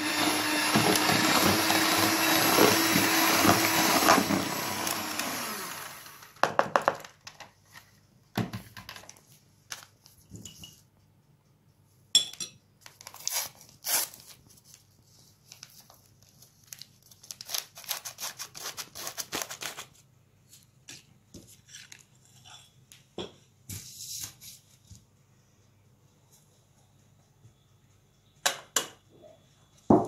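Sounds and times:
packet crinkling: 0:15.6 - 0:20.0.

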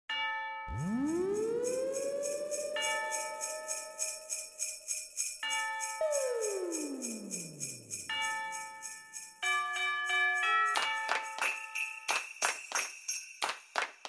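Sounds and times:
downward pitch swoop: 0:00.7 - 0:03.6, 0:06.0 - 0:08.1
chime-like chords: 0:00.7 - 0:04.7
sleigh bells shaking: 0:00.8 - 0:14.0.

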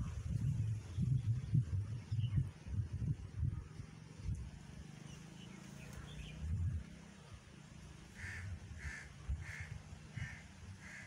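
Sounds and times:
low microphone rumbles: 0:00.0 - 0:04.6, 0:06.0 - 0:06.9
crow cawing: 0:08.1 - 0:11.0.

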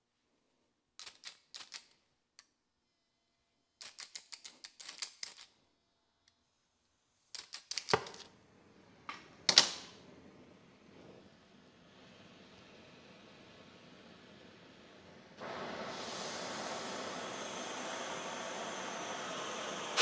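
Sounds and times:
gas hissing: 0:09.2 - 0:20.0
torch flame hissing: 0:10.0 - 0:20.0.

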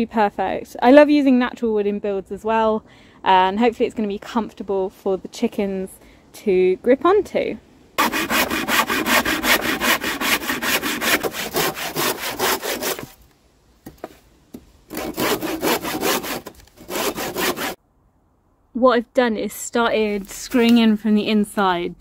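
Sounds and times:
handsaw cutting wood: 0:08.0 - 0:13.2, 0:14.9 - 0:17.8.

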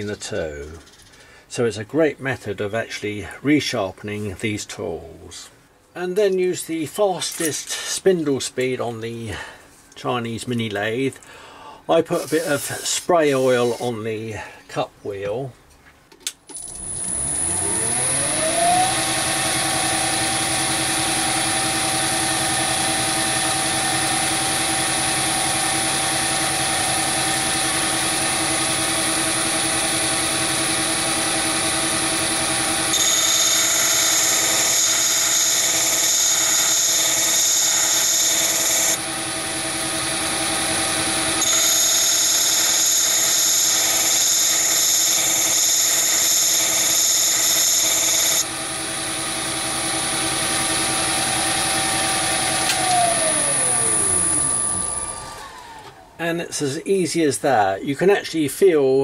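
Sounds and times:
high-pitched grinding: 0:16.5 - 0:55.9
lathe motor whining: 0:16.5 - 0:56.2.

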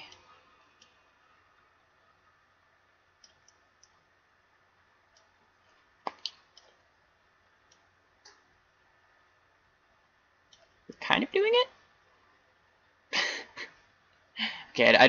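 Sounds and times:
low hiss: 0:00.0 - 0:15.0
computer mouse clicks: 0:03.2 - 0:04.0.

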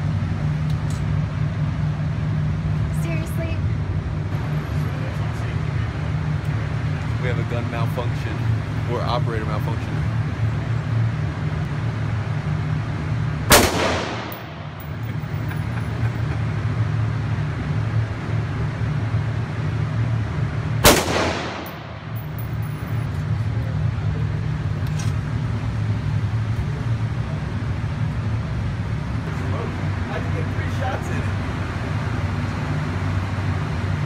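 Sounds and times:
steady low hum: 0:00.0 - 0:34.0
rifle shots echoing: 0:13.5 - 0:15.1, 0:20.8 - 0:22.4.

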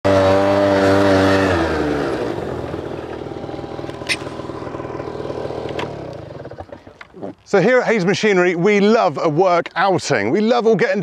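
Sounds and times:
quad bike engine revving: 0:00.0 - 0:07.4
sharp click: 0:03.8 - 0:04.4.

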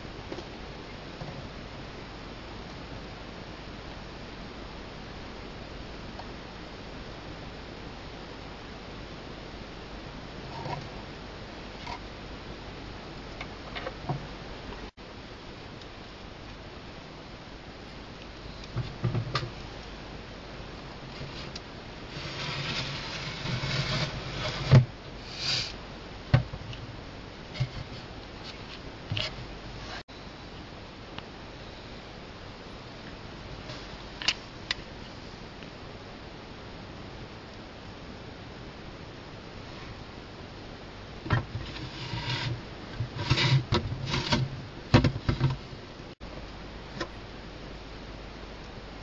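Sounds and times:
rustling: 0:21.0 - 0:25.8.

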